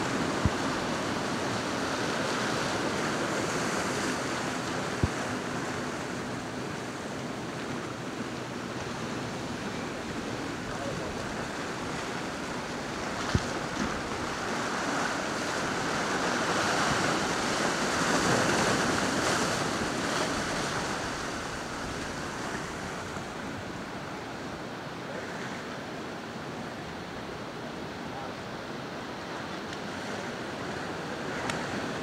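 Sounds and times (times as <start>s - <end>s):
wind on microphone: 0.0s - 6.9s, 8.9s - 24.3s
choppy waves: 0.0s - 32.0s
motorboat speeding past: 0.0s - 32.0s.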